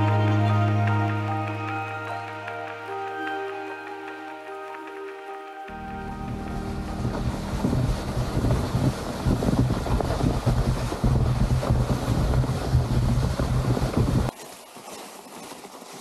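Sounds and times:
wind buffeting microphone: 0:05.7 - 0:14.3.

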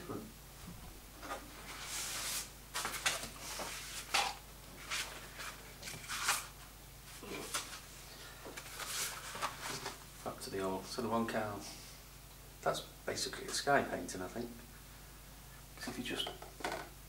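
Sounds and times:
paper rustling and scraping: 0:01.2 - 0:06.5, 0:08.6 - 0:10.0.

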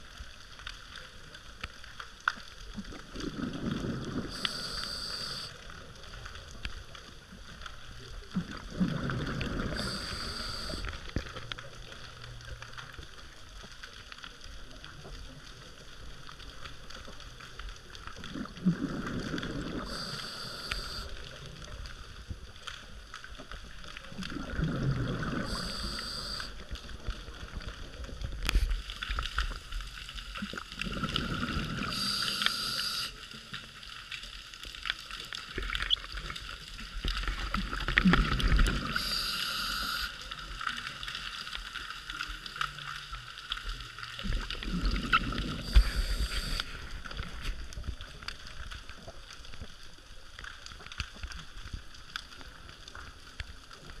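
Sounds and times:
faint crackling clicks: 0:00.0 - 0:54.0
exhaled bubbles rumbling: 0:02.5 - 0:34.4, 0:35.0 - 0:54.0
regulator hissing inhale: 0:04.2 - 0:05.6, 0:09.6 - 0:11.0, 0:19.8 - 0:21.2, 0:25.3 - 0:26.6, 0:31.4 - 0:33.3, 0:38.8 - 0:40.3, 0:45.6 - 0:46.9.

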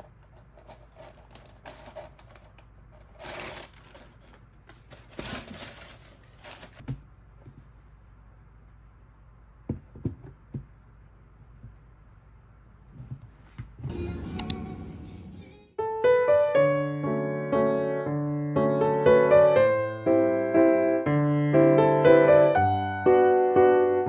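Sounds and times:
tissue paper rustling: 0:00.0 - 0:06.8
shoes knocking on shelf: 0:09.7 - 0:10.8.

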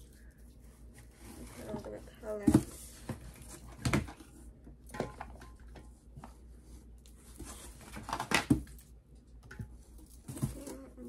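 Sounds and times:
plastic bottles knocking and clattering: 0:02.3 - 0:05.9, 0:07.8 - 0:08.8.

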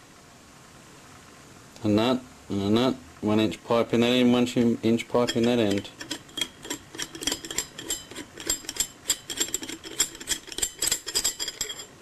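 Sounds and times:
metal nuts clicking: 0:04.5 - 0:12.0.

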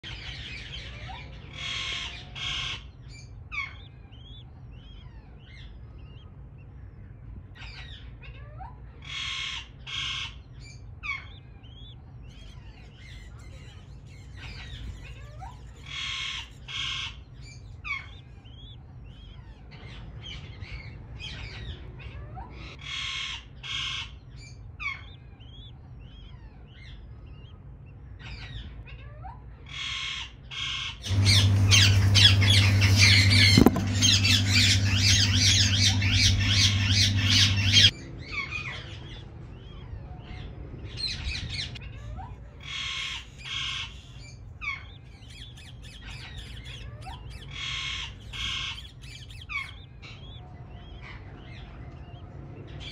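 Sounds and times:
steady low hum: 0:00.0 - 0:28.9, 0:29.5 - 0:52.9
small birds chirping: 0:00.0 - 0:52.9
harsh bird squawks: 0:00.2 - 0:06.3, 0:07.6 - 0:20.1, 0:29.6 - 0:40.3, 0:41.1 - 0:51.9.

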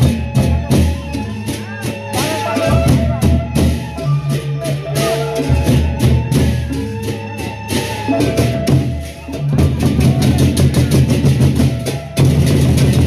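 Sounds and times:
barrel drums beaten: 0:04.9 - 0:13.0.

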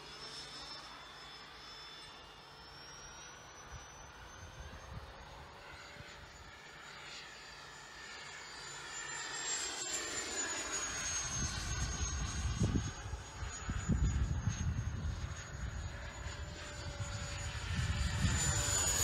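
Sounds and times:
model jet fan whine: 0:00.0 - 0:19.0
wind rumble on microphone: 0:11.3 - 0:19.0.

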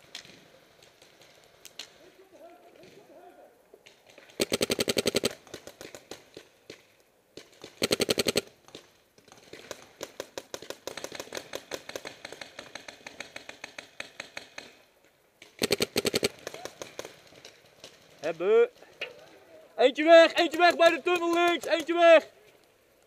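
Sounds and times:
faint distant paintball fire: 0:00.0 - 0:19.6
paintball marker rapid firing: 0:04.3 - 0:06.5, 0:07.4 - 0:14.8, 0:15.5 - 0:18.0.

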